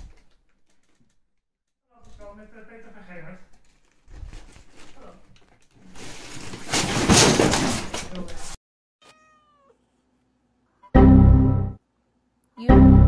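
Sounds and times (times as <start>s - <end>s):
cat meow: 9.0s - 9.8s
loud steady chord: 11.0s - 11.8s, 12.6s - 13.0s.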